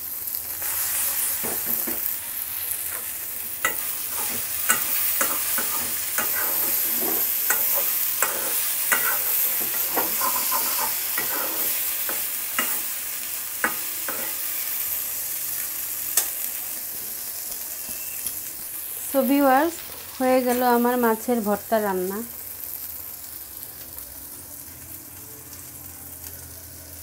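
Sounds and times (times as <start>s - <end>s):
fish sizzling in a wok: 0.0s - 27.0s
wooden spatula scraping a pan: 4.1s - 11.9s.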